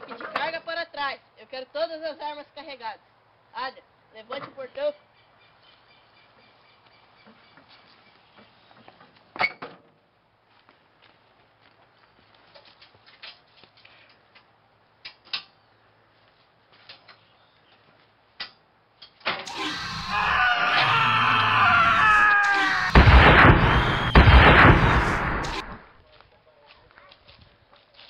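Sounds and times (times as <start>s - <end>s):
long scream sliding down: 19.5s - 25.8s.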